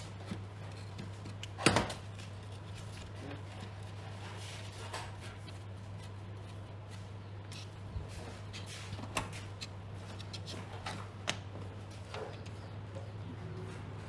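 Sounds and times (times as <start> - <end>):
faint clicks and rustles: 0.0 - 14.0
steady low hum: 0.0 - 14.0.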